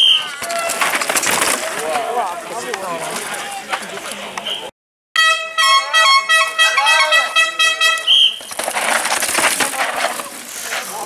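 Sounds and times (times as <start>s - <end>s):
bike tyres skidding through dirt: 0.0s - 3.4s, 8.0s - 11.0s
horn blowing: 5.2s - 8.4s.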